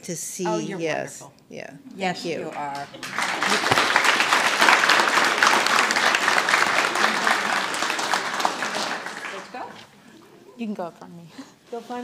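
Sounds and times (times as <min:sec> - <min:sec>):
audience applauding: 0:02.7 - 0:10.0.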